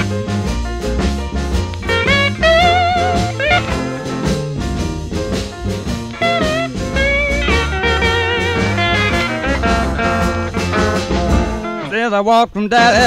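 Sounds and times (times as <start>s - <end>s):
bass guitar: 0.0s - 12.0s
drums: 0.0s - 12.0s
electric slide guitar: 1.7s - 4.6s, 5.3s - 12.0s.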